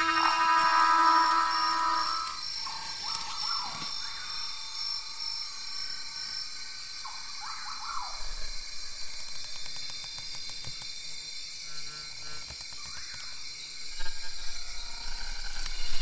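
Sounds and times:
sweeping rising and falling calls: 0.0s - 4.4s
night insects chorus: 0.0s - 16.0s.

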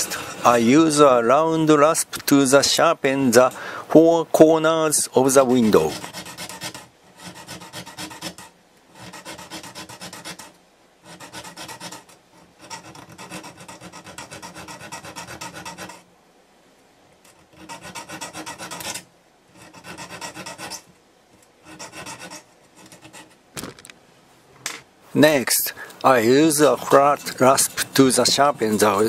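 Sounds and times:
rasp filing metal: 0.0s - 0.6s, 5.6s - 16.1s, 17.2s - 20.9s, 21.6s - 23.4s, 26.6s - 29.0s.

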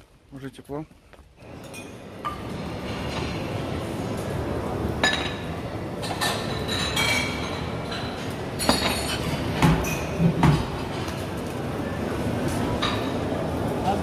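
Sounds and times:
crockery and cutlery clinking: 1.4s - 3.5s, 5.0s - 11.3s, 12.4s - 13.3s.

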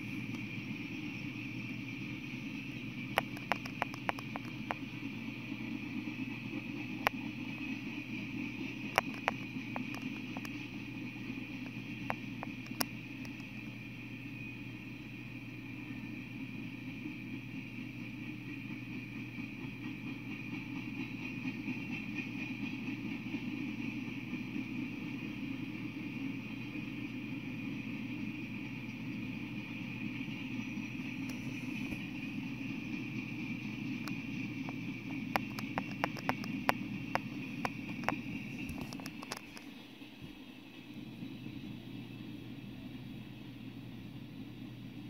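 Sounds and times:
freight train cars rolling past: 0.0s - 45.0s
sharp clicks: 8.8s - 10.7s, 34.0s - 39.7s.

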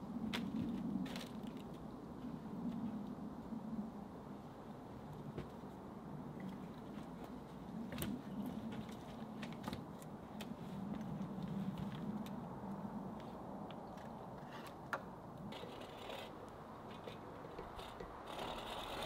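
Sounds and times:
wooden pole knocking and scraping: 16.9s - 19.0s.

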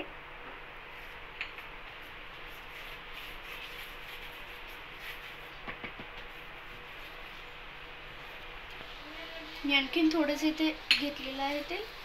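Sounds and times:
background hiss: 0.0s - 12.0s
spoon scraping on chapati: 2.0s - 9.9s.

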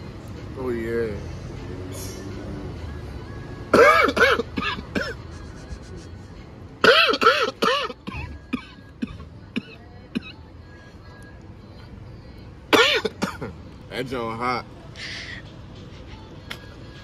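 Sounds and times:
man coughing: 3.7s - 5.3s, 6.8s - 10.3s, 12.7s - 13.5s.

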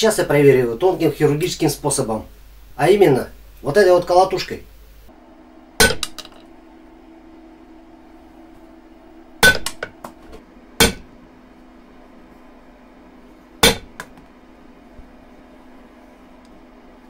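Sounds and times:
hammer blows on metal anvil: 9.4s - 9.9s, 10.8s - 11.1s, 13.6s - 14.0s.

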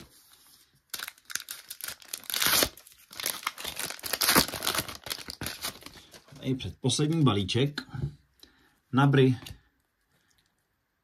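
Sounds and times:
card pack wrapper tearing and crinkling: 0.9s - 6.3s.

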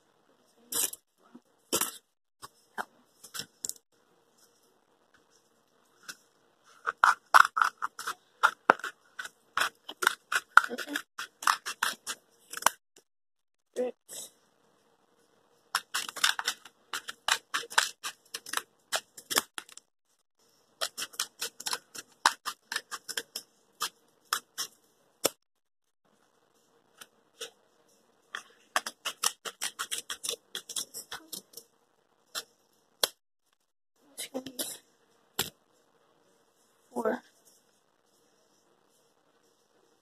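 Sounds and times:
scissors snipping cardboard: 15.8s - 19.8s, 28.7s - 31.4s.

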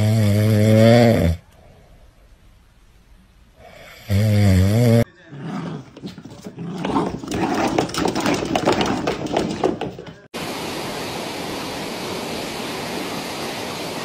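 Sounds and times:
loud rippling snore: 0.0s - 1.4s, 3.7s - 5.8s
dog growling: 4.2s - 9.7s.

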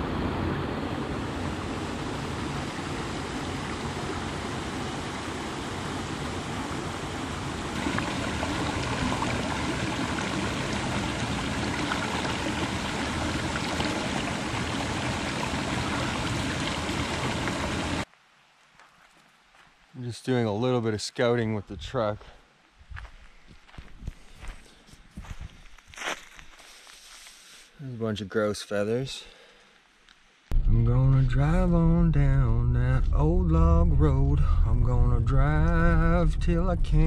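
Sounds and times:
stream rushing over rocks: 0.0s - 18.1s.

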